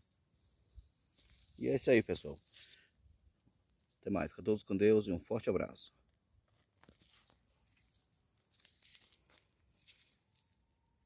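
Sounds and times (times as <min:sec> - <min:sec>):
faint rustles and clicks: 0:00.5 - 0:03.0, 0:06.4 - 0:10.7.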